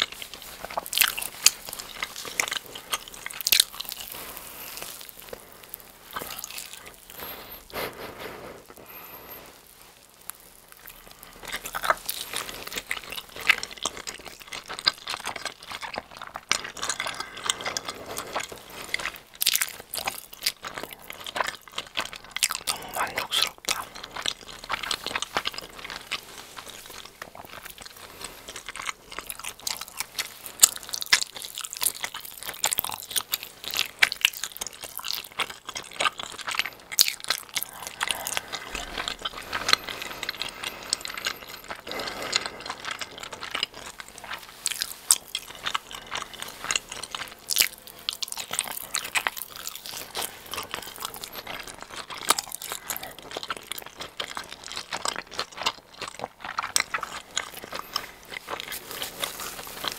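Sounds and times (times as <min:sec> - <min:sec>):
cheese being chewed: 0:00.0 - 0:59.9
crust crunching: 0:00.0 - 0:59.9.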